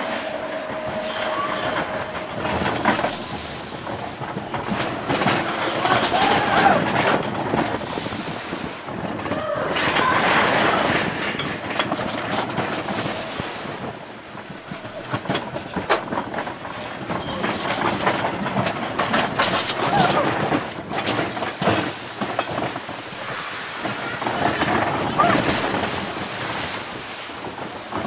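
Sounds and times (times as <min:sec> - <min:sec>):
squealing tones: 0:00.0 - 0:03.5
roller coaster track rumble: 0:00.0 - 0:28.0
wind rushing on microphone: 0:00.0 - 0:28.0.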